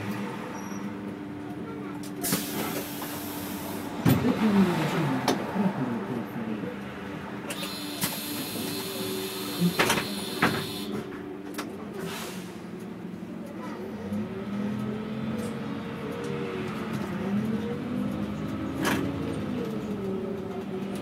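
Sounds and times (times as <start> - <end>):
bus engine idling: 0.0 - 21.0
short air hisses: 12.0 - 12.6.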